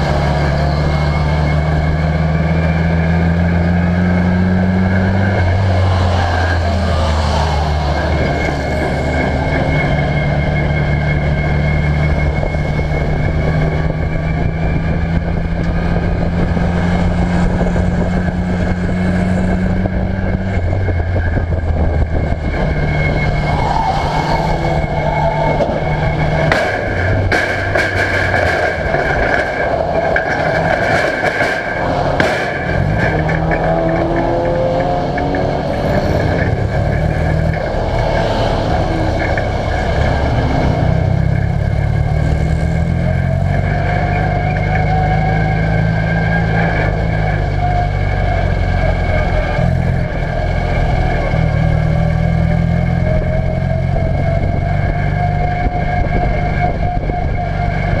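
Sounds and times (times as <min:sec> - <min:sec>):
race car engine revving: 0:00.0 - 0:58.0
sharp knocks and rattles: 0:25.4 - 0:38.2.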